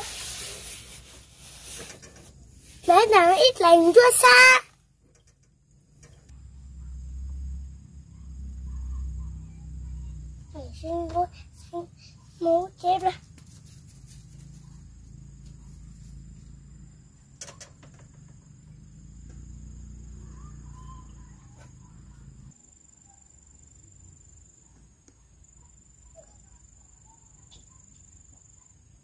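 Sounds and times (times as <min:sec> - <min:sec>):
crickets trilling: 0:00.1 - 0:29.0
faint chirps: 0:05.2 - 0:29.0
low hum: 0:05.6 - 0:12.6.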